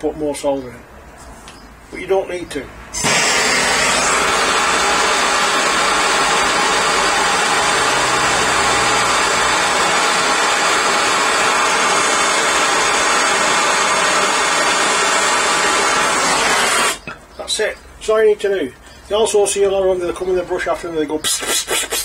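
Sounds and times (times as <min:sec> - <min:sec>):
blowtorch flame rushing: 0:02.9 - 0:17.1.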